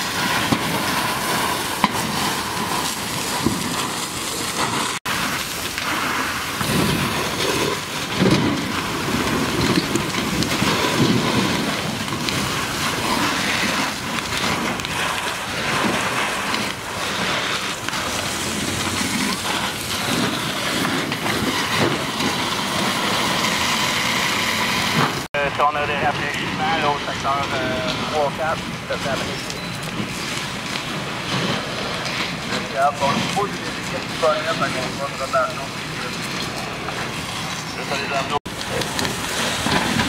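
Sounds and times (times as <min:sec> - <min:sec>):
fire hose spraying: 0:00.0 - 0:40.0.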